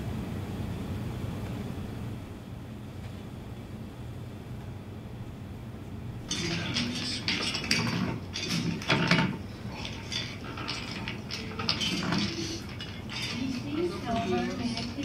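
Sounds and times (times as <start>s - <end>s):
small plastic parts clattering: 6.3s - 15.0s.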